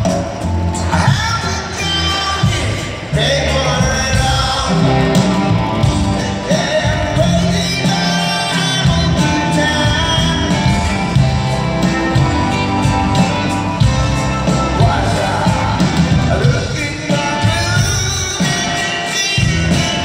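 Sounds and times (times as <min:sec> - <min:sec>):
drums: 0:00.0 - 0:20.0
electric guitars: 0:00.0 - 0:20.0
keyboards: 0:00.0 - 0:20.0
person singing: 0:06.0 - 0:11.1, 0:14.4 - 0:20.0.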